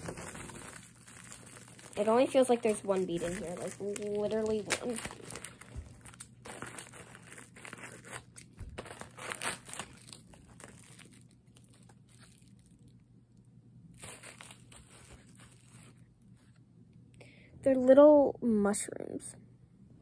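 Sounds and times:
plastic bag crinkling and tearing: 0.0s - 13.1s, 13.9s - 16.2s.

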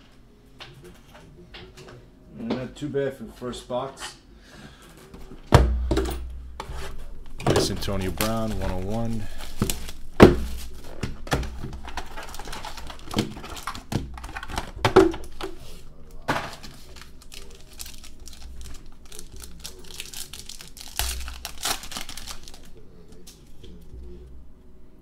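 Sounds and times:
foil wrappers crinkling and tearing: 6.7s - 23.9s.

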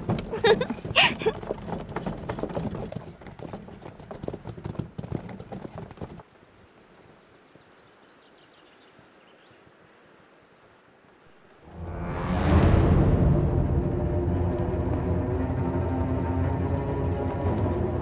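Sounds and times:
horses' hooves clopping: 0.0s - 11.2s, 13.9s - 18.0s
low music swell: 11.5s - 18.0s.

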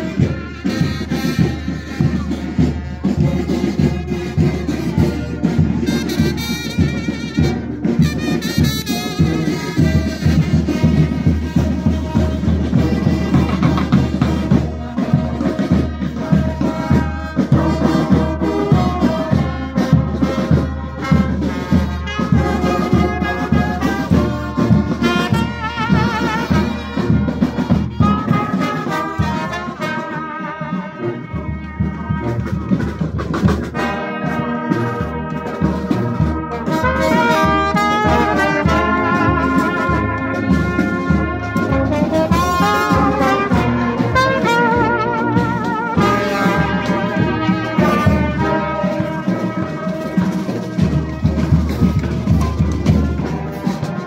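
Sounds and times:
marching brass band playing: 0.0s - 54.0s
steady drum beat: 0.0s - 54.0s.

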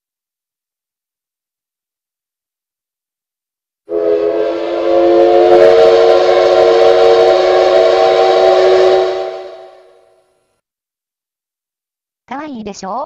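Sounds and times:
steam whistle: 3.9s - 10.4s.

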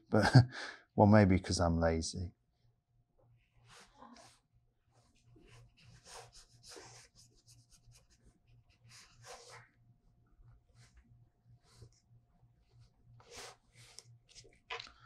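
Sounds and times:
brush pen strokes on paper: 3.4s - 9.8s, 12.6s - 14.4s.

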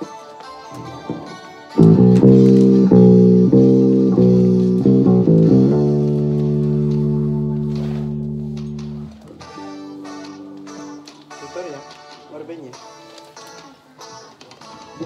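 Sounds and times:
electric bass guitar plucked: 1.0s - 11.9s.

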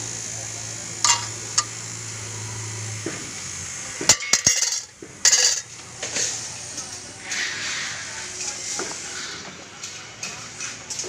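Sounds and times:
machine low hum: 0.0s - 7.2s.

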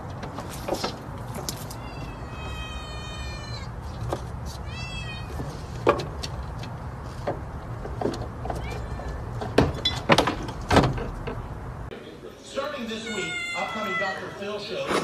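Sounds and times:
kitten meowing: 1.7s - 3.7s, 4.6s - 5.4s, 13.1s - 14.3s.

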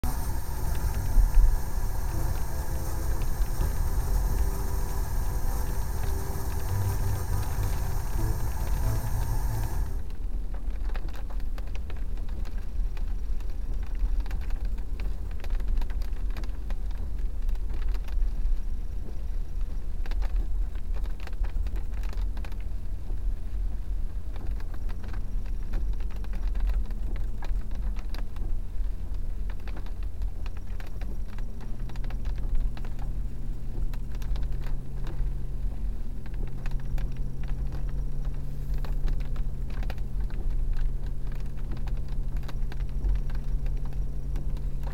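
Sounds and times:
car rumbling over dirt track: 0.0s - 10.2s
engine hum: 0.0s - 10.6s, 21.8s - 44.9s
small clicks and rattles: 10.5s - 44.9s.

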